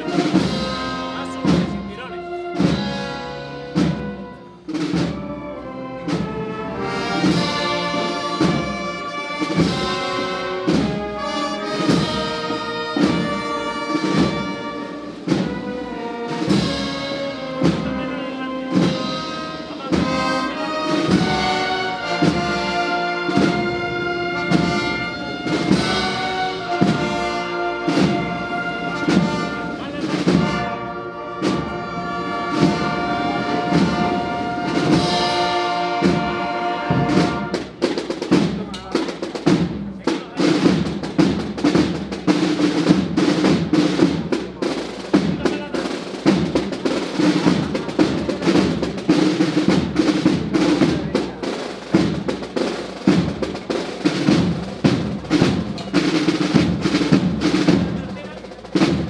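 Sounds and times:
brass melody: 0.0s - 59.0s
steady drum beat: 0.0s - 59.0s.

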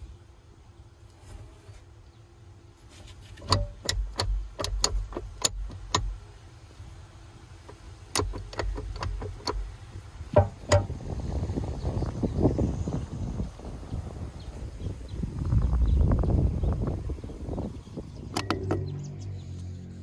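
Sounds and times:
metallic clicks of connecting rod: 3.4s - 6.2s, 7.6s - 9.8s, 18.3s - 19.0s.

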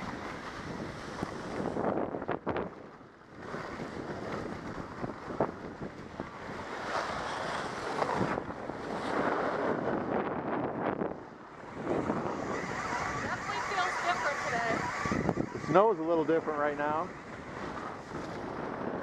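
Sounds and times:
wind buffeting microphone: 0.0s - 19.0s
skis carving snow: 6.6s - 9.8s, 11.7s - 15.2s, 16.1s - 19.0s.

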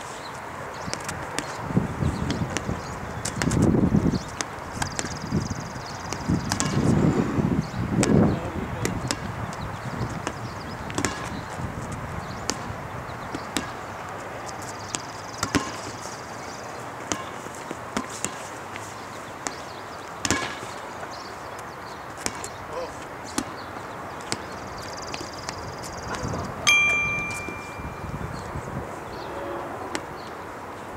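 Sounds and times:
rubber ball bouncing on asphalt: 2.2s - 5.2s, 6.0s - 6.9s, 8.8s - 9.4s, 10.2s - 11.4s, 13.3s - 13.8s, 14.8s - 15.8s, 19.4s - 20.6s.

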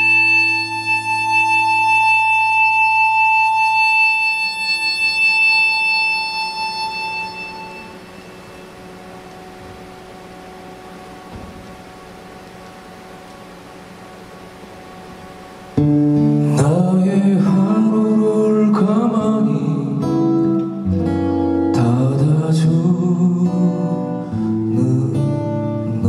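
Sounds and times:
harmonica long high note: 0.0s - 17.8s
low accompanying chord: 0.0s - 26.0s.

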